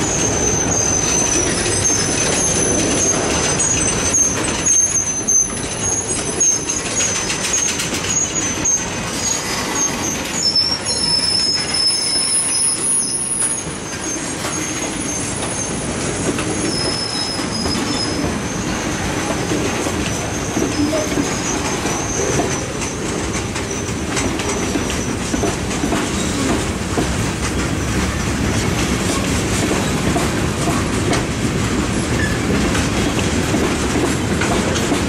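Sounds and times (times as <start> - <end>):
high wheel squeal: 0.0 - 25.4, 32.0 - 32.6
train cars rumbling on rails: 0.0 - 35.0
clicks over rail joints: 19.2 - 35.0.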